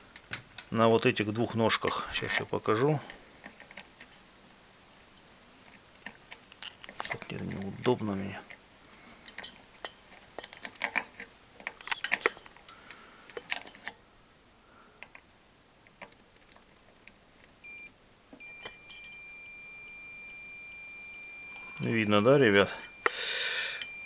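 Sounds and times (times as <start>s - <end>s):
multimeter beeping: 17.6s - 24.0s.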